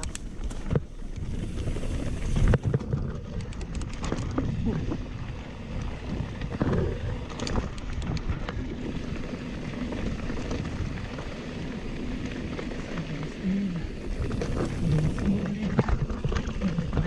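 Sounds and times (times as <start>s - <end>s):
bike rattling: 0.0s - 17.0s
bike tyres crunching on gravel: 0.0s - 17.0s.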